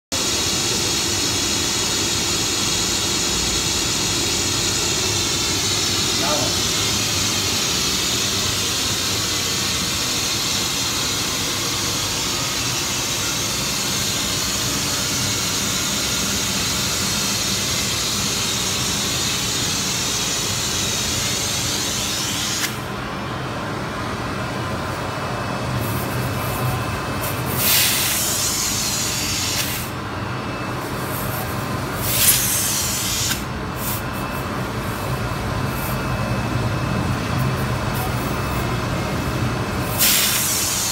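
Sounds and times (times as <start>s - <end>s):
industrial vacuum cleaner running: 0.1s - 40.9s.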